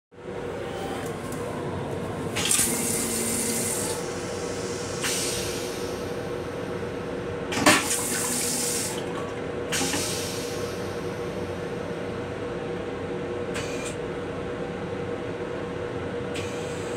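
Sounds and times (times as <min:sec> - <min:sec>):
steady railcar hum: 0:00.1 - 0:16.9.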